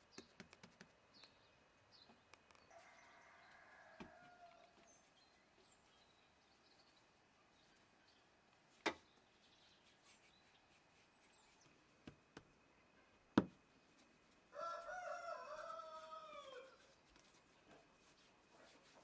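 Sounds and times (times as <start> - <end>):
rooster crowing: 2.7 - 4.7, 14.5 - 16.8
dough knocking on wooden board: 13.4 - 13.6.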